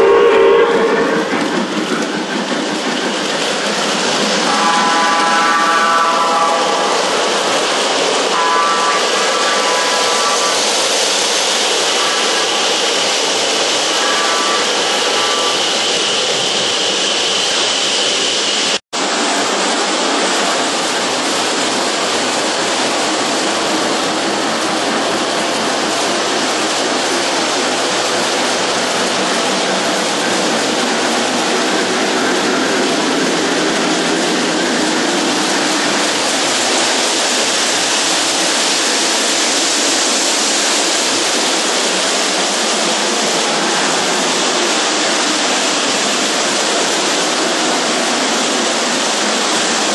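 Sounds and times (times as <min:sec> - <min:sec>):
model train wheels on metal rail: 0:00.0 - 0:18.5.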